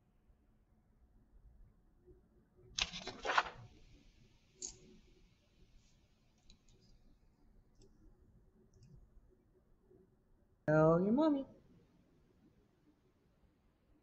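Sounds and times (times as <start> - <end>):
handling rustle: 2.8 - 3.7.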